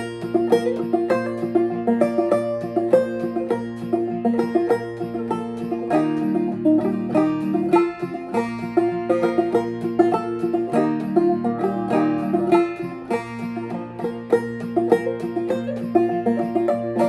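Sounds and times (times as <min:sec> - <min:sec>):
clawhammer banjo playing: 0:00.0 - 0:17.0.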